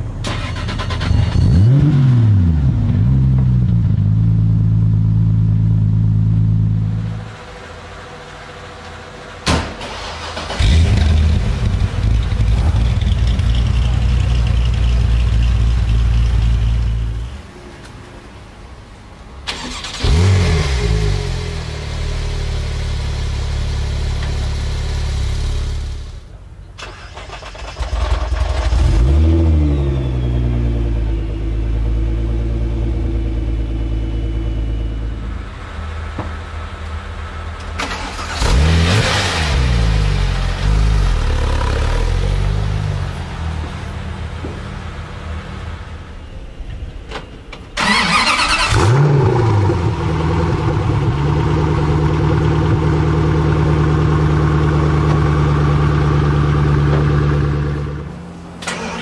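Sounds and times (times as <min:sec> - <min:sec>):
car engines starting up: 0:00.0 - 0:59.0
car engine running loud: 0:10.3 - 0:17.5, 0:47.8 - 0:59.0.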